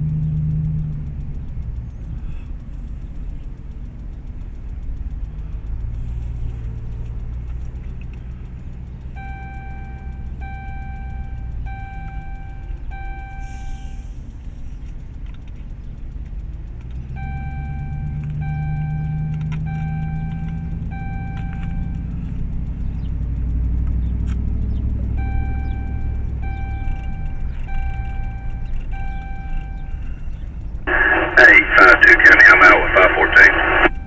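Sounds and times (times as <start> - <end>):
engine and road rumble: 0.0 - 34.0
electronic beeps: 9.1 - 14.0, 17.1 - 22.2, 25.1 - 34.0.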